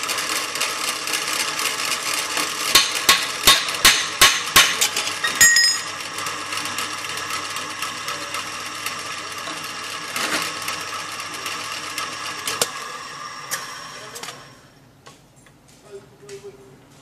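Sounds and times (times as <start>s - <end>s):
drill press motor whine: 0.0s - 3.4s, 4.8s - 14.9s.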